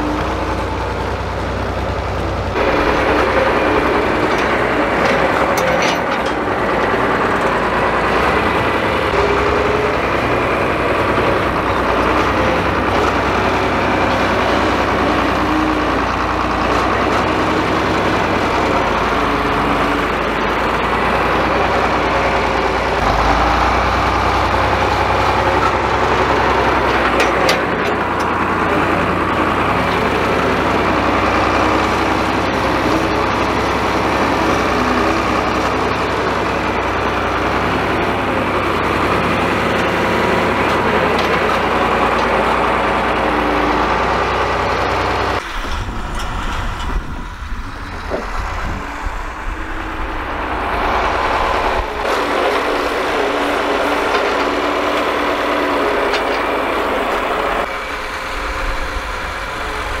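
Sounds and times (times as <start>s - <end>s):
tractor engine running under load: 0.0s - 60.0s
uneven low rumble: 45.4s - 52.0s.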